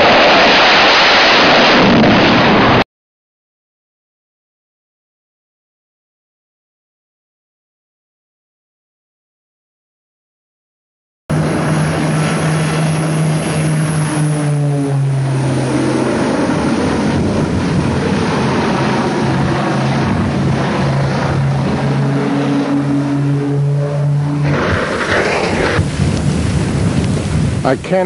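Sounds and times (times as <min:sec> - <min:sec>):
rush of noise from plane crash: 0:00.0 - 0:02.8, 0:11.3 - 0:28.0
propeller airplane engines droning: 0:11.3 - 0:28.0.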